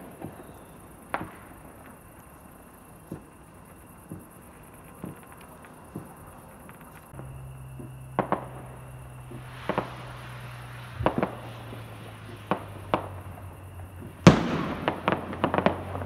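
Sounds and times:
fireworks bangs: 0.0s - 16.0s
steady hiss: 0.0s - 16.0s
crackling pops: 4.0s - 16.0s.

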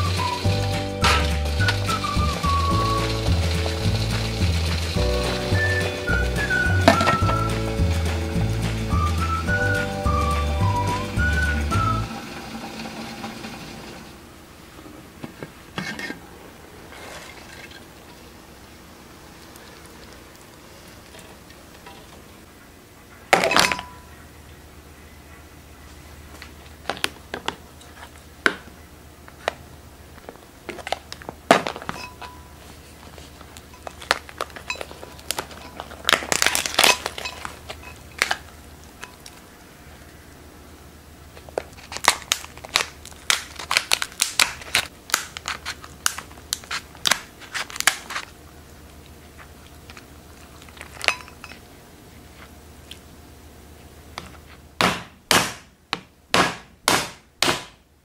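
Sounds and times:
lobster shell cracking: 33.9s - 38.5s, 41.6s - 48.3s.

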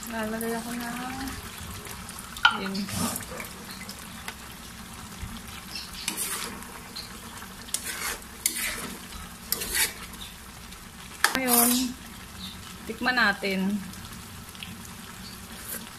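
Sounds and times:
sauce sizzling: 0.0s - 15.9s
metal spoon scraping a pan: 5.7s - 10.3s, 11.3s - 12.0s.

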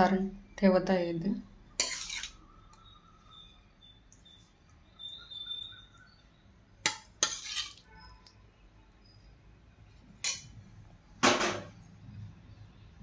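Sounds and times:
steel spoon clinking: 10.2s - 10.6s.

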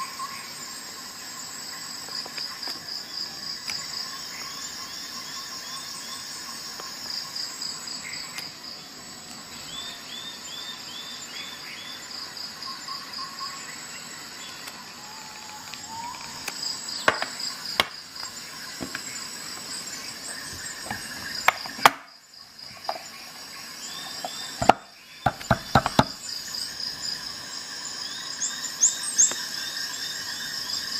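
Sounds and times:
high-pitched insect chirping: 0.0s - 30.9s
plastic case clicking and knocking: 17.1s - 17.9s, 24.6s - 26.2s.

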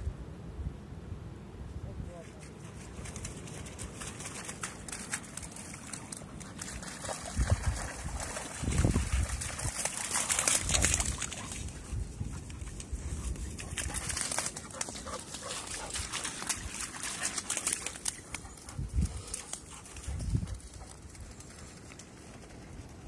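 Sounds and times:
dogs splashing in water: 3.1s - 12.8s, 13.4s - 20.1s.

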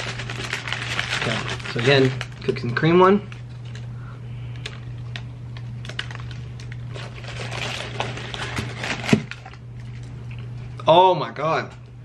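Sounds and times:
paper wrapper crackling: 0.0s - 3.9s, 4.5s - 10.5s
steady low hum: 0.0s - 12.0s.

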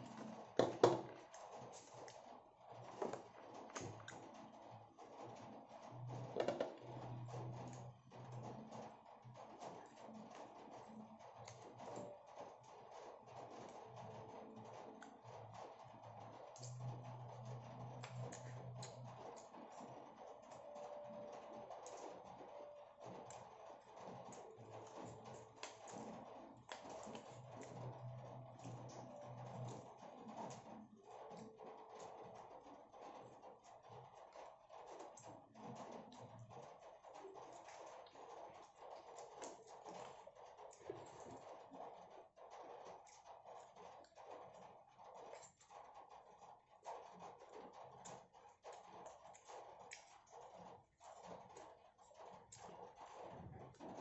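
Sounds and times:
plastic cutlery scraping food: 0.0s - 8.9s, 22.6s - 32.6s
faint chewing: 13.4s - 33.4s, 34.2s - 54.0s.

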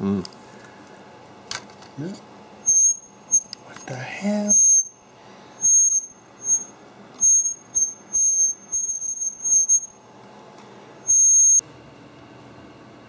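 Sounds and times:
high-pitched laptop squeal: 2.7s - 3.5s, 4.4s - 5.0s, 5.6s - 10.0s, 11.1s - 11.6s.

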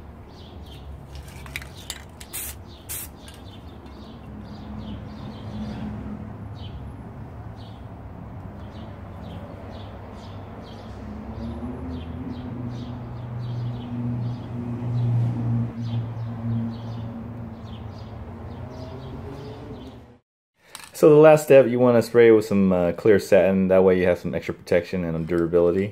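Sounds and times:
bird chirping: 0.2s - 5.9s, 15.8s - 20.1s.

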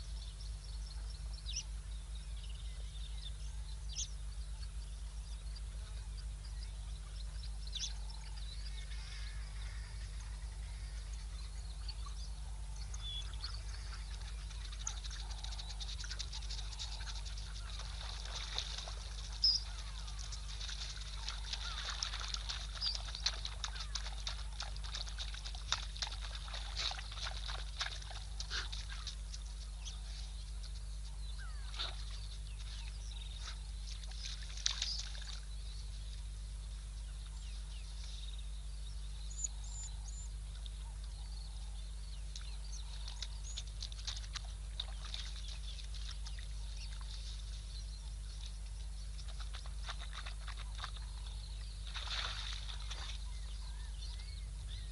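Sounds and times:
steady low hum: 0.0s - 54.9s
wild dogs twittering calls: 7.5s - 30.3s.

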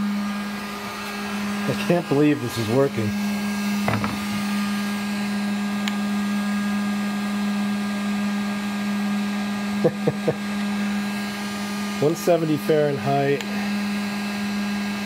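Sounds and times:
heat gun fan drone: 0.0s - 15.0s.

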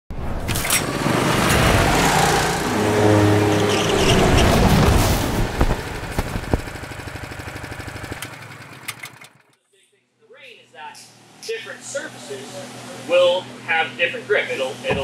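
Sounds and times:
go-kart engines running: 0.6s - 9.6s.

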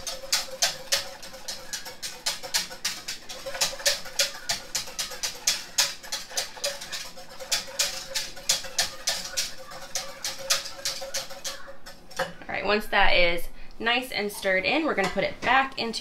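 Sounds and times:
whisk clinking against metal pot: 0.0s - 12.3s.

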